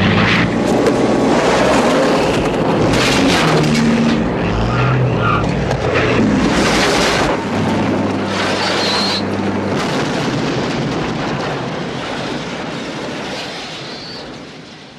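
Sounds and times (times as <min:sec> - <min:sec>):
propeller plane engine drone: 0:00.0 - 0:14.9
rumbling explosion blast: 0:05.5 - 0:14.9.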